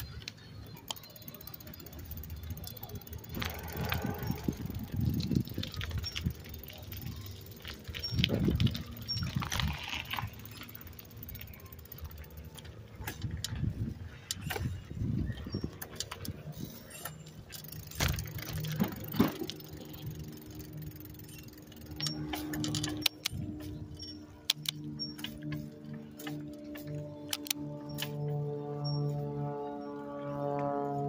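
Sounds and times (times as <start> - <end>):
bicycle rattles and clicks: 0.0 - 31.0
wind on microphone: 3.3 - 10.3, 13.0 - 16.8.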